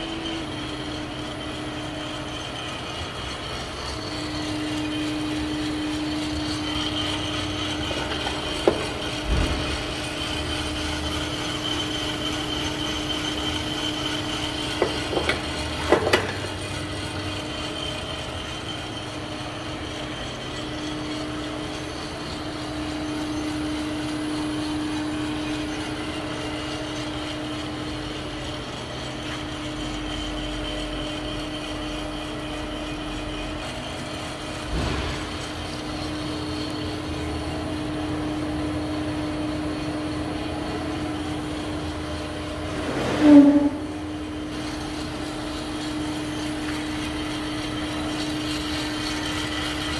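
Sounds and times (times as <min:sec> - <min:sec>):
coffee roaster machine hum: 0:00.0 - 0:49.9.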